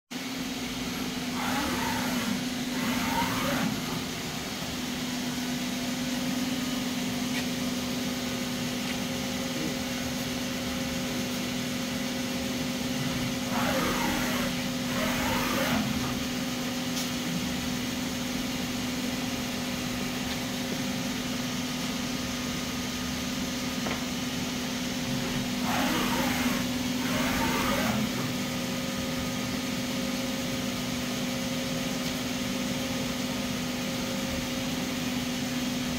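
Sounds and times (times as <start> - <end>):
machine humming: 0.5 - 6.9, 11.9 - 16.7, 25.1 - 28.6
spindle whine rising and falling: 1.4 - 5.0, 13.2 - 16.4, 25.6 - 28.4.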